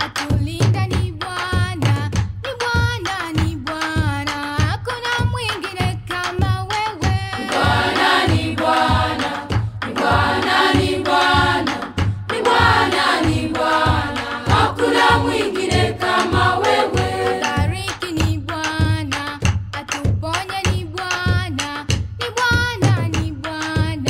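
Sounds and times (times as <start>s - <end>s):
steady drum beat: 0.0s - 24.0s
choir singing: 7.4s - 17.7s.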